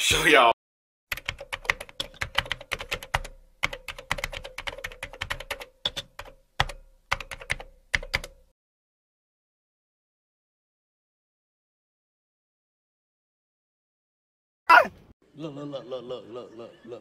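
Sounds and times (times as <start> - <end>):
typing on computer keyboard: 1.1 - 8.4.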